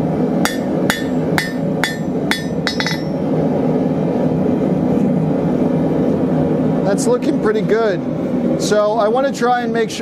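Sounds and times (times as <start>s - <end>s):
hammer striking steel on anvil: 0.4s - 3.2s.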